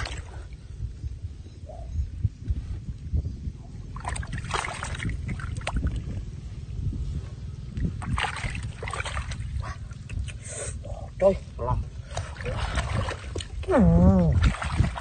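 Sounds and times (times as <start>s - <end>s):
low rumble: 0.0s - 15.0s
hands splashing in muddy water: 4.0s - 6.1s, 7.9s - 9.6s, 12.1s - 15.0s.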